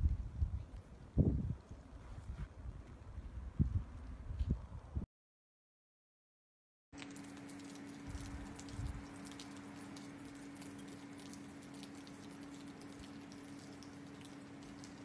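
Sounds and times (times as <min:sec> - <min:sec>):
pattering of falling snow: 0:07.0 - 0:15.0.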